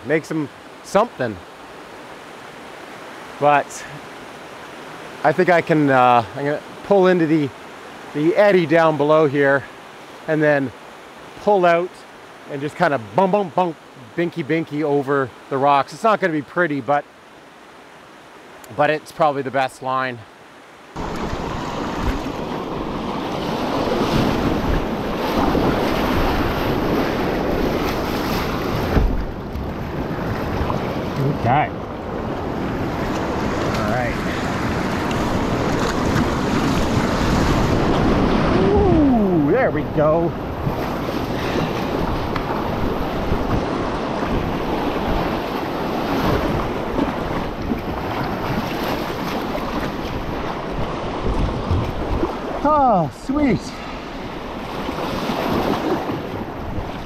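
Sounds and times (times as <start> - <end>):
water splashing around kayak hull: 20.3 - 57.0
whitewater rushing: 20.9 - 57.0
wind buffeting microphone: 21.0 - 52.6.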